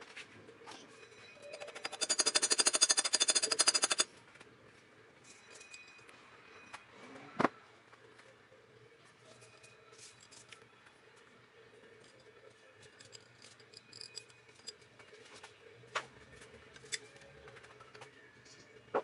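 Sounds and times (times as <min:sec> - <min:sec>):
metal engine parts clinking: 0:01.4 - 0:04.1, 0:12.0 - 0:15.0.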